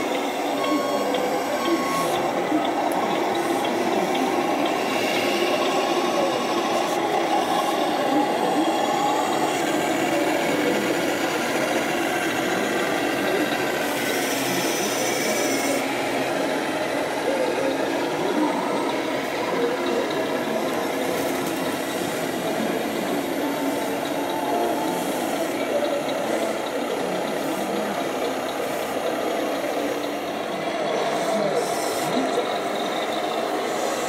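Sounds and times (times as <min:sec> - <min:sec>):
model trucks running: 0:00.0 - 0:34.0
people talking in background: 0:00.0 - 0:34.0
hiss: 0:23.6 - 0:25.6, 0:31.1 - 0:32.4.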